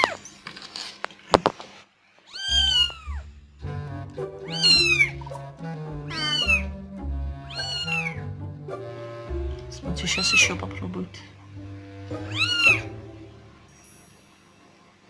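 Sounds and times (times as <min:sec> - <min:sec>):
kitten mewing: 0:02.3 - 0:03.3, 0:04.4 - 0:05.3, 0:06.1 - 0:06.7, 0:07.5 - 0:08.2, 0:12.2 - 0:12.9
background music: 0:02.5 - 0:15.0.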